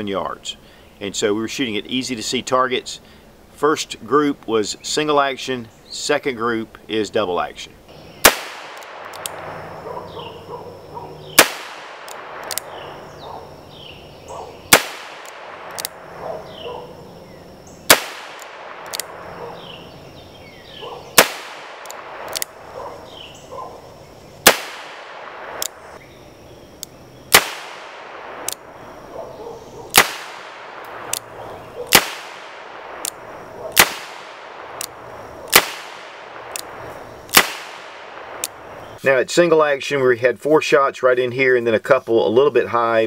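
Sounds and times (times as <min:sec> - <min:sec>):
revolver shots: 0:08.2 - 0:10.2, 0:11.2 - 0:13.4, 0:14.3 - 0:16.9, 0:17.8 - 0:20.0, 0:20.8 - 0:23.2, 0:24.4 - 0:26.0, 0:27.3 - 0:28.8, 0:29.9 - 0:38.7
revolver clicks: 0:11.4 - 0:12.8, 0:14.7 - 0:16.0, 0:17.9 - 0:19.2, 0:21.2 - 0:22.6, 0:28.0 - 0:28.7.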